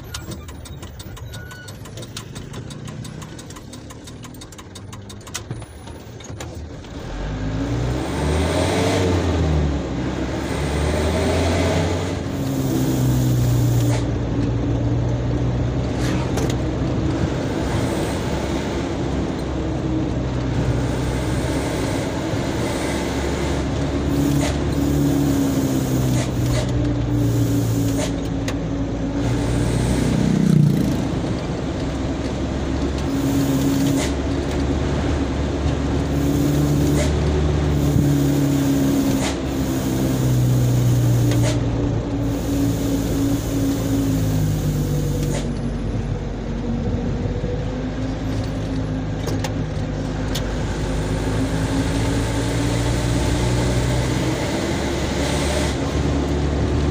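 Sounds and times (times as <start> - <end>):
light clicks and rattles in cab: 0.0 - 7.0
truck engine from inside cab: 0.0 - 56.9.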